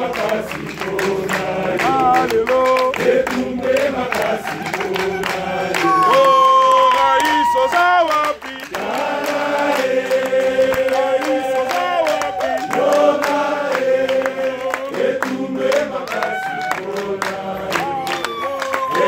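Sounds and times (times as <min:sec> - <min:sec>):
crowd singing together: 0:00.0 - 0:19.0.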